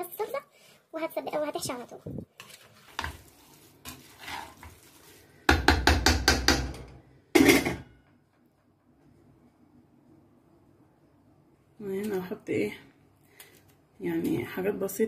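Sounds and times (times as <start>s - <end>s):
metal spoon scraping metal pan: 2.4s - 4.8s.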